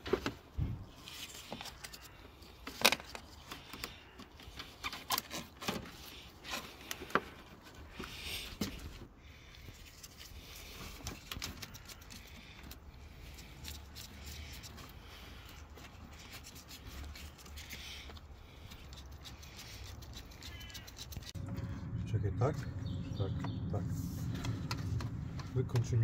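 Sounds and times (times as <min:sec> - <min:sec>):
clicks and scrapes of plastic and metal: 0:00.0 - 0:21.6.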